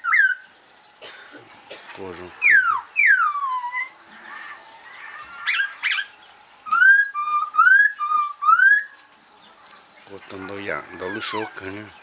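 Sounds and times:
songbird whistling: 0:00.0 - 0:00.5, 0:02.4 - 0:04.0, 0:04.9 - 0:09.0.

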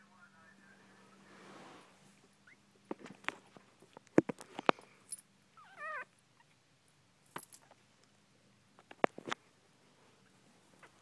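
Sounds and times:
puppy whimpering: 0:05.6 - 0:06.5.

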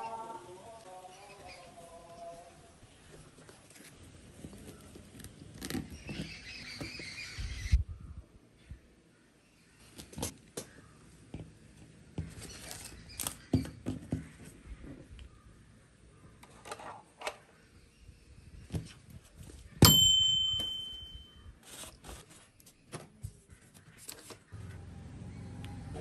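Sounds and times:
high metallic ding: 0:19.8 - 0:21.4.

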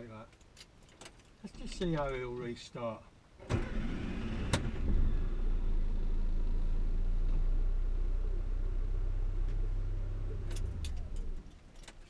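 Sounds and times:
car engine starting and idling: 0:03.4 - 0:11.9.

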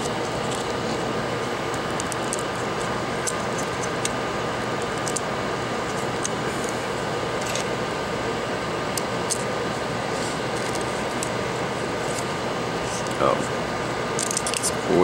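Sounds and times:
fan whirring: 0:00.0 - 0:15.0.

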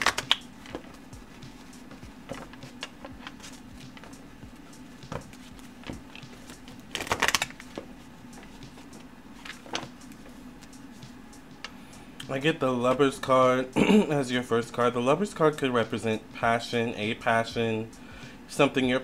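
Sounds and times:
cards being shuffled: 0:00.0 - 0:11.8.

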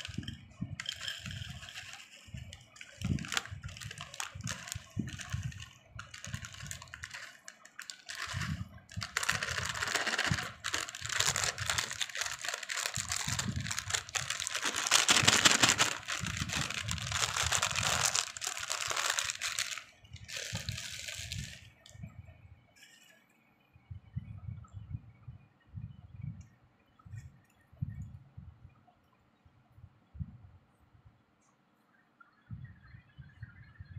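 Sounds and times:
plastic snack packet crinkling: 0:00.0 - 0:21.9.

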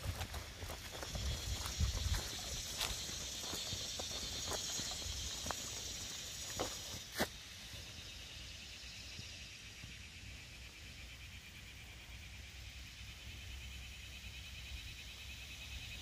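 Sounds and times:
footsteps on leafy dirt path: 0:00.0 - 0:07.4
insects trilling: 0:00.0 - 0:16.0.

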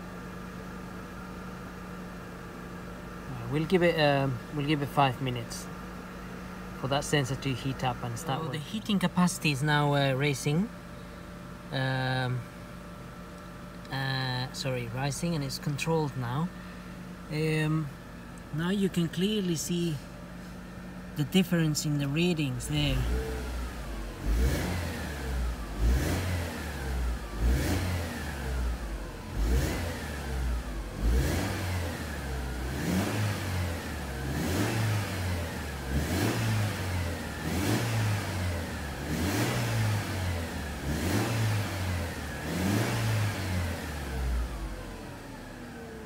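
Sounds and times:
car engine revving: 0:21.2 - 0:46.0.

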